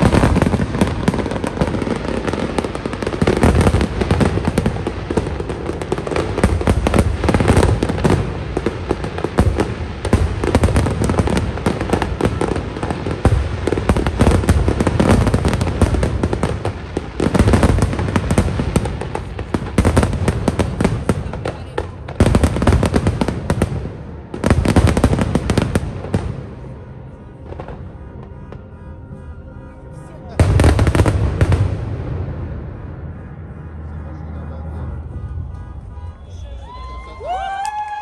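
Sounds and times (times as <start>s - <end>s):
fireworks bangs and crackles: 0.0s - 29.0s, 30.2s - 38.0s.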